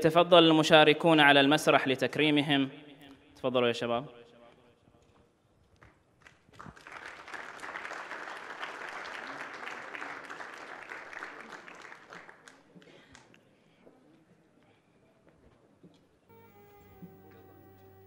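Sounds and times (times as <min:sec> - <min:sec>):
audience applauding: 0:06.2 - 0:13.3.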